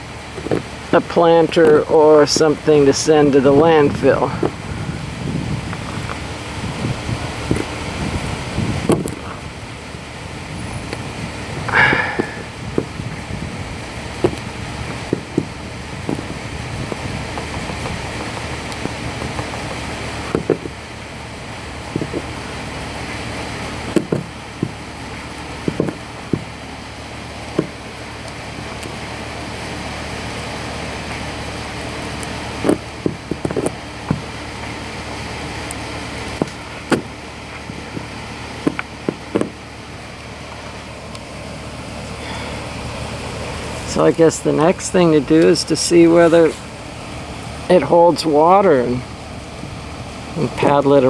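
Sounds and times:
steady background noise: 0:00.0 - 0:51.0
welding iron tapping and scraping: 0:14.1 - 0:20.8, 0:21.9 - 0:22.4, 0:23.8 - 0:26.6, 0:32.0 - 0:34.8, 0:35.6 - 0:39.6.

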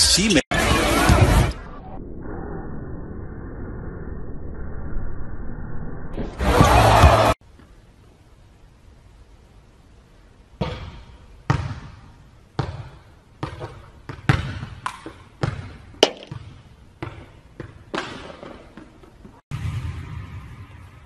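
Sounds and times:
ball bouncing on hardwood floor: 0:12.6 - 0:19.1.

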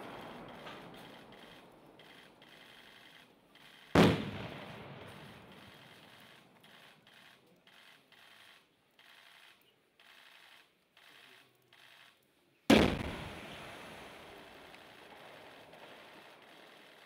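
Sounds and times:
loud explosion: 0:04.0 - 0:05.4, 0:12.7 - 0:14.2.

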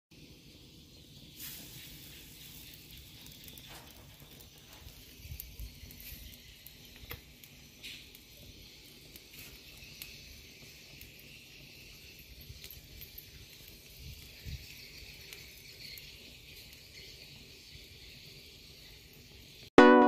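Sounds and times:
charcoal fire crackling: 0:00.1 - 0:19.7
fire pops: 0:01.3 - 0:17.2.

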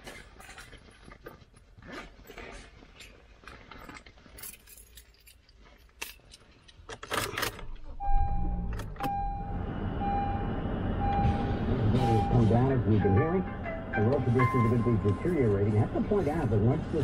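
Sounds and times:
car keys jangling: 0:02.9 - 0:07.8
car engine starting and running: 0:07.0 - 0:17.0
warning chime dinging: 0:08.0 - 0:15.7.

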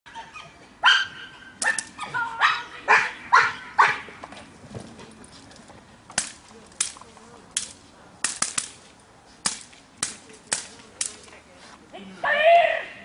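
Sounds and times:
dog barking: 0:02.4 - 0:04.0.

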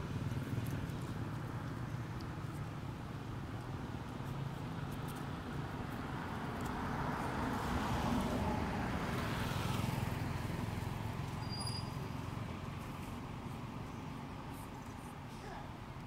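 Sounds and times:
vehicle passing: 0:03.3 - 0:14.7.

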